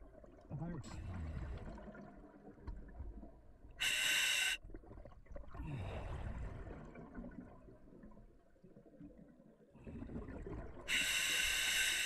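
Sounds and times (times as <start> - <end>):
regulator inhale hiss: 3.8 - 4.6, 10.9 - 12.0
exhale bubbling underwater: 4.6 - 11.6.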